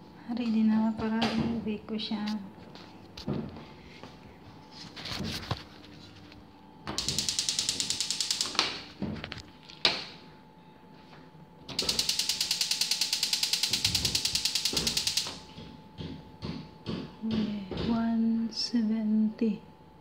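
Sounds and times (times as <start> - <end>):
oven spark igniter clicking: 7.0 - 8.9, 11.7 - 15.5.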